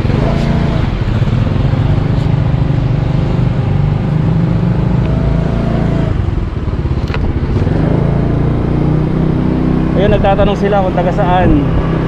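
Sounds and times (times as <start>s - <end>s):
motor scooter engine running: 0.0s - 5.4s, 6.0s - 12.0s.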